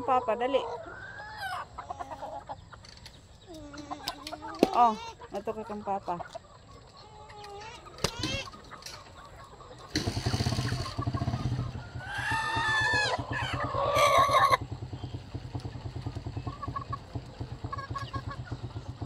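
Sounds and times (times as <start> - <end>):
engine puttering: 8.1 - 19.0
rooster crowing: 11.8 - 14.6.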